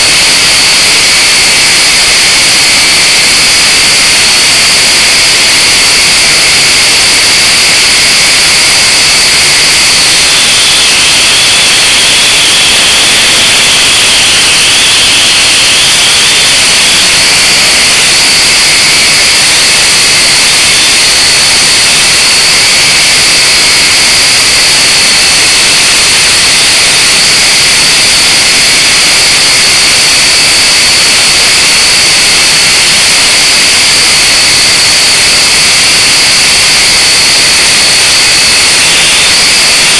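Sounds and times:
quadcopter propellers whining: 0:00.0 - 0:39.9.

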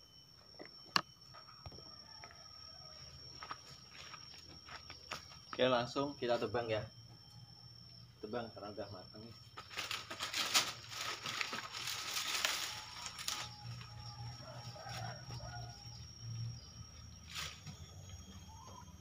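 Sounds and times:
dry leaves rustling and crackling: 0:09.6 - 0:15.8, 0:17.3 - 0:17.7.

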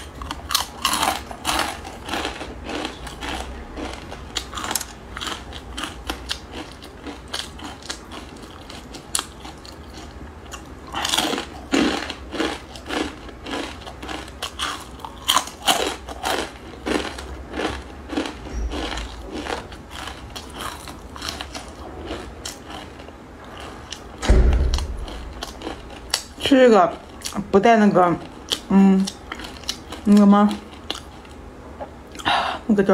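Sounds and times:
crunchy noodles being chewed: 0:00.0 - 0:24.2, 0:28.2 - 0:31.4
loud low thump: 0:24.2 - 0:26.5.

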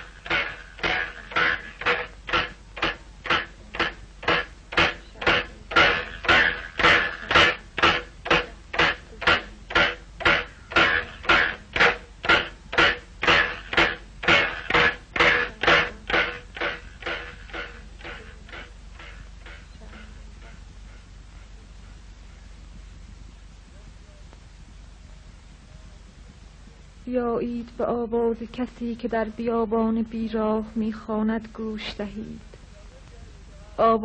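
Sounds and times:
rhythmic sharp knocking: 0:00.0 - 0:24.9.

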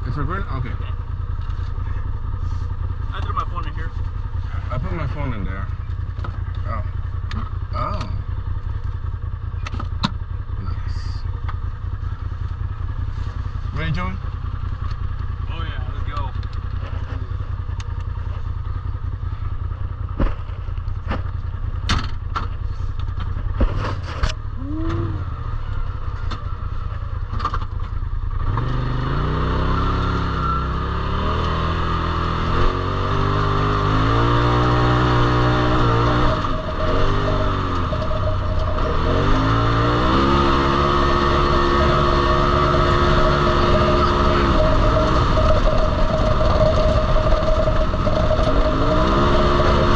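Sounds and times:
engine revving: 0:00.0 - 0:12.1, 0:23.6 - 0:49.9
off-road vehicle engine rumble: 0:00.0 - 0:49.9.

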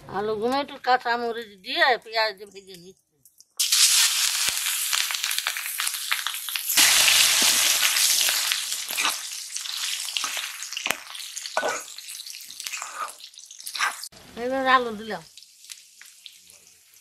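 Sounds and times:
onion sizzling in hot oil: 0:03.6 - 0:17.0.

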